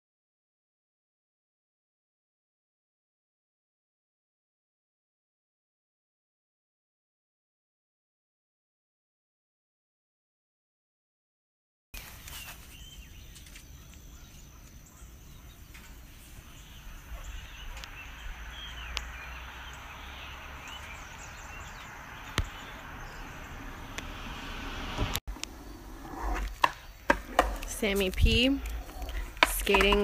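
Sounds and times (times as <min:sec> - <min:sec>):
small birds chirping: 0:12.0 - 0:30.0
low wind rumble: 0:14.9 - 0:30.0.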